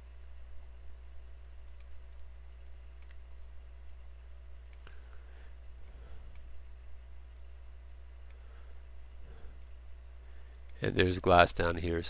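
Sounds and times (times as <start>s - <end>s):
steady low hum: 0.0s - 12.0s
computer mouse clicks: 1.6s - 3.2s, 4.7s - 5.0s, 7.3s - 7.5s.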